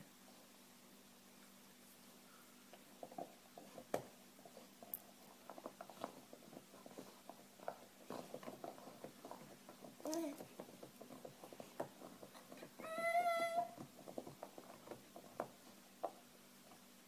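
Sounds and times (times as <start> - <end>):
dog gnawing on bone: 3.0 - 12.8, 13.6 - 16.2.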